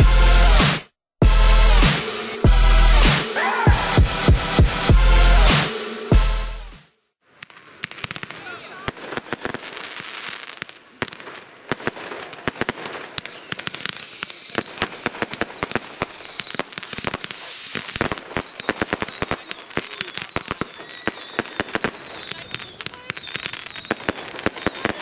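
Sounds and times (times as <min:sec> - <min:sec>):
fireworks bangs and crackling: 0:00.0 - 0:00.8, 0:01.8 - 0:25.0
falling firework whistles: 0:13.1 - 0:25.0.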